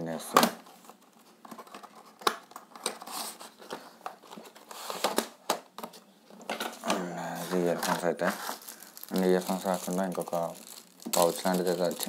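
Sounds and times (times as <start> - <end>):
cardboard and plastic crinkling: 6.4 - 12.0.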